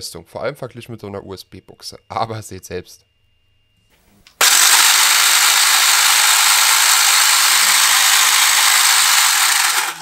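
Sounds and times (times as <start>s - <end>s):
electric motor whirring gears: 4.4s - 10.0s.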